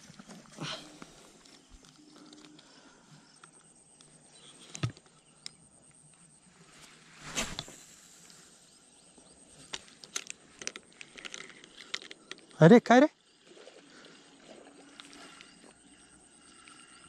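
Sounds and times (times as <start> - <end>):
fishing rod swish: 7.2 - 7.9.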